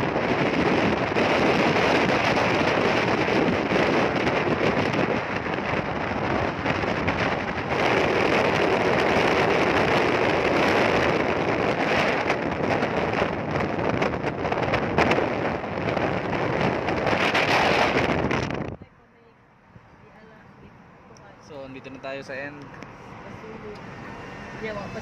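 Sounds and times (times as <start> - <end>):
wind buffeting microphone: 0.0 - 19.0
wind and tyre noise: 0.0 - 25.0.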